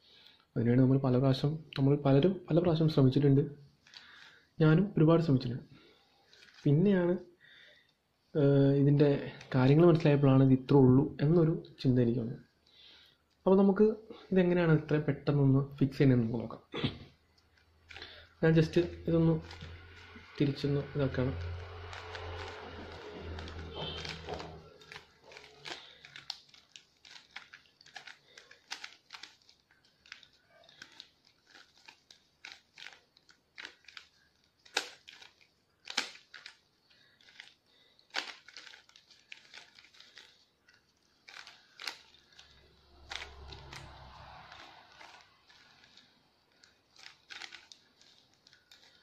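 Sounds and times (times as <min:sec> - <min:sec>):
puzzle cube clicking: 0:21.3 - 0:49.0.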